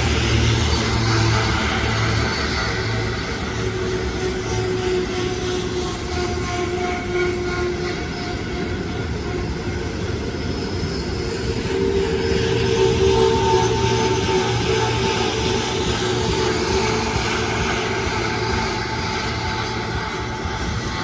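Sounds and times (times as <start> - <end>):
freight train wheels rumbling: 0.0 - 21.0.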